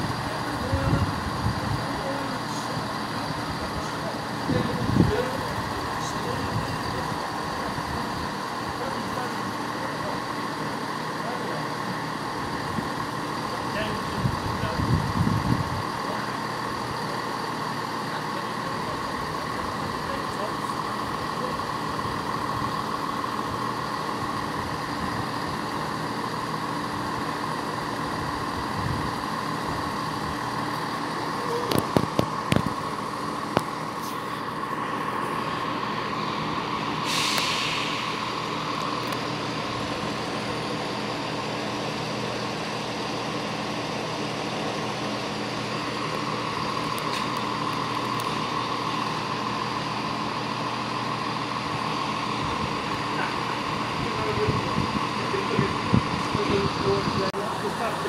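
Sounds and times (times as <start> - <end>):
train engines humming: 0.0 - 58.0
air hiss: 36.9 - 39.0.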